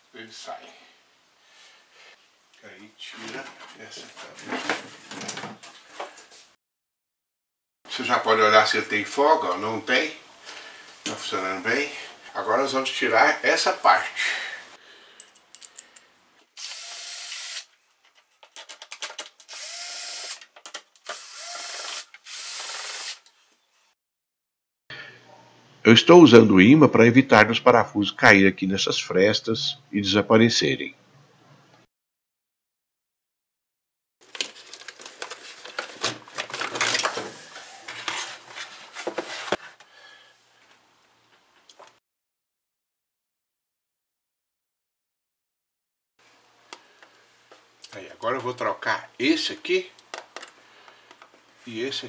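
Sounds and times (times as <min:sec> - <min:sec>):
clicks and rattles of handling: 0:15.2 - 0:16.0, 0:18.0 - 0:19.5, 0:20.4 - 0:21.0, 0:34.2 - 0:39.6, 0:50.0 - 0:51.4
cordless drill spinning: 0:16.6 - 0:17.7, 0:19.5 - 0:20.4, 0:21.0 - 0:23.3
plastic panel clattering and scraping: 0:35.7 - 0:39.6.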